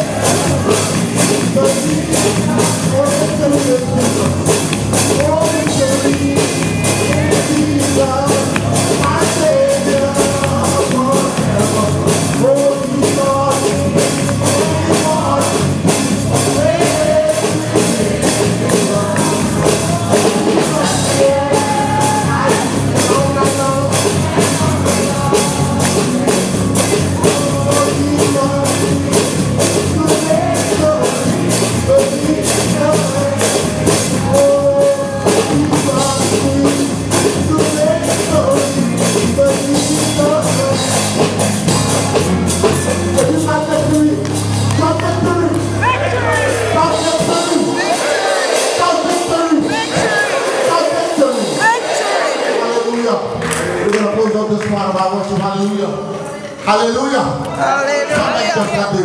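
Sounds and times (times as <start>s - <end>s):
people singing a melody: 0.0s - 4.4s, 5.2s - 41.1s, 45.8s - 52.7s
drum kit beat: 0.0s - 52.6s.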